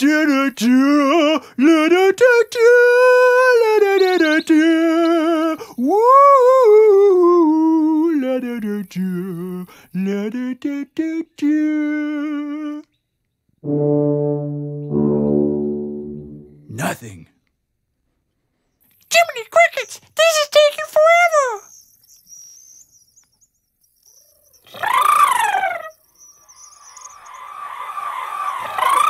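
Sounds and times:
low layered horn-like tone: 0:13.6 - 0:16.7
person singing wordless notes: 0:13.6 - 0:17.2.

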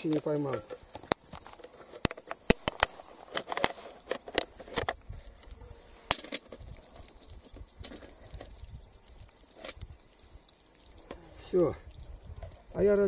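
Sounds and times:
wire-mesh trap clicks and knocks: 0:06.1 - 0:06.7.

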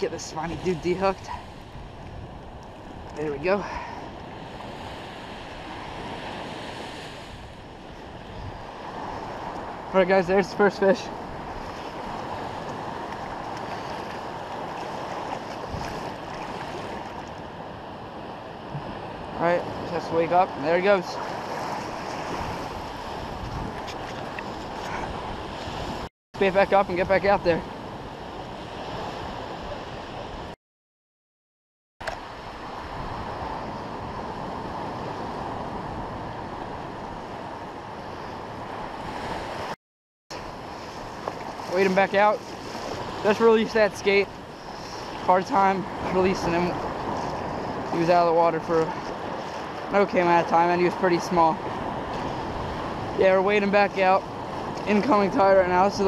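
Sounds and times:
wind on microphone: 0:00.0 - 0:10.4, 0:11.0 - 0:19.9, 0:21.2 - 0:26.1
surf washing over shallow water: 0:00.0 - 0:30.6, 0:32.0 - 0:56.0.

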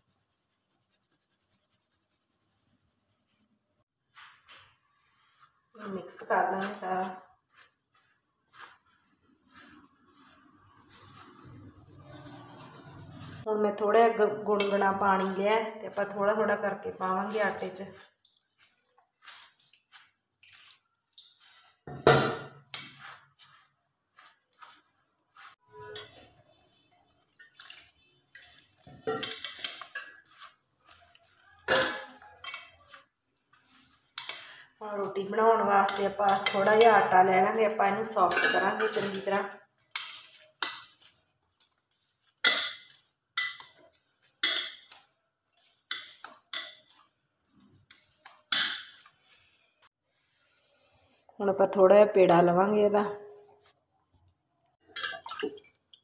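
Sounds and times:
hand mixing wet dough in bowl: 0:00.0 - 0:21.9, 0:22.6 - 0:56.0.

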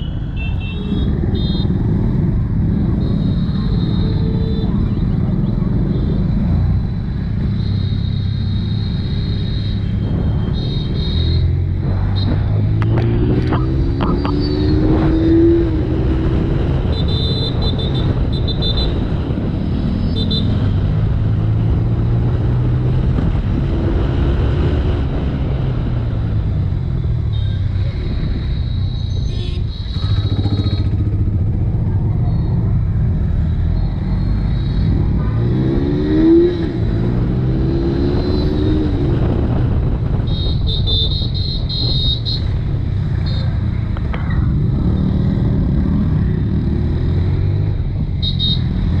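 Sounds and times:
wind and road noise: 0:00.0 - 0:49.0
motorcycle engine revving: 0:00.8 - 0:28.5, 0:29.4 - 0:49.0.

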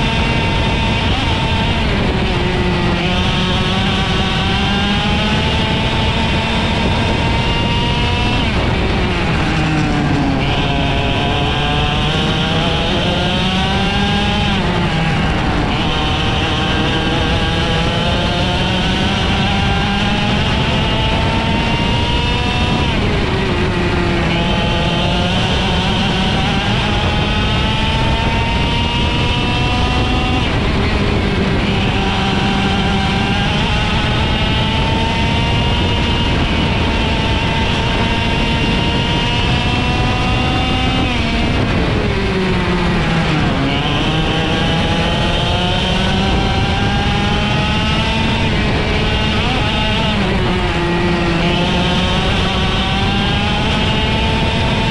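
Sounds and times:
kart engine racing at high revs: 0:00.0 - 0:54.9.

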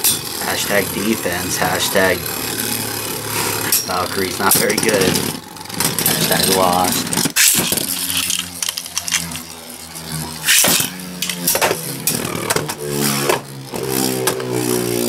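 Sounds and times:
spinning tops whirring: 0:00.0 - 0:15.0
spinning tops clacking: 0:03.6 - 0:09.6.

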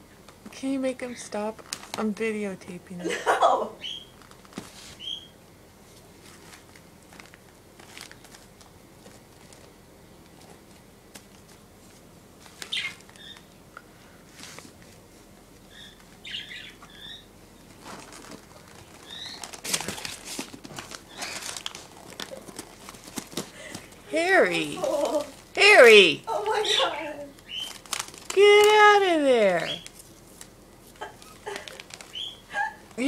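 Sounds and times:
wrapping paper crinkling: 0:01.5 - 0:02.2, 0:03.8 - 0:05.2, 0:06.0 - 0:13.5, 0:17.6 - 0:33.0.

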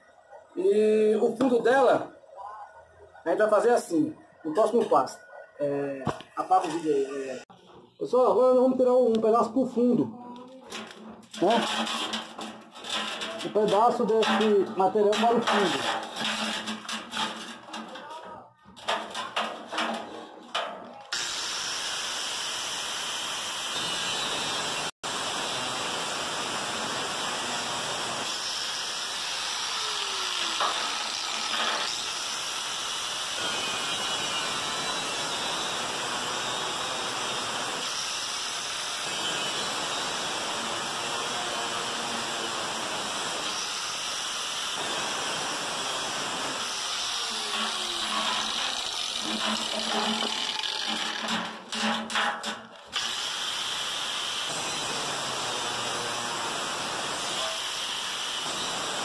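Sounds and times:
angle grinder cutting steel: 0:10.7 - 0:18.0, 0:21.0 - 0:59.0.

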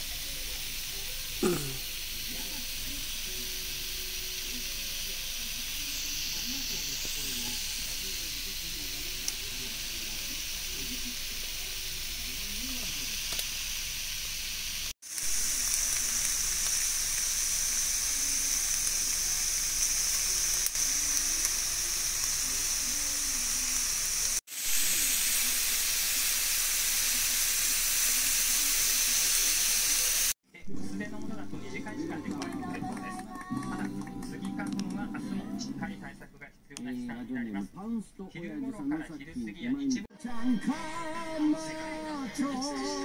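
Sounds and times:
shrimp sizzling in a skillet: 0:00.0 - 0:30.4.

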